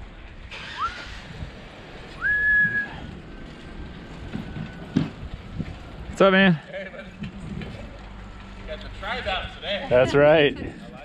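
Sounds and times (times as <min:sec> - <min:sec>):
high swooping whistle: 0:00.6 - 0:01.1, 0:02.2 - 0:03.1
steady low rumble: 0:01.2 - 0:11.0.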